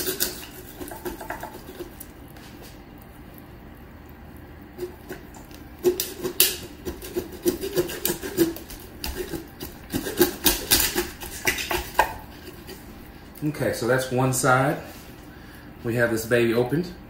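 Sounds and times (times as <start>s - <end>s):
knife crunching through bones: 0.0s - 2.4s, 4.8s - 12.8s.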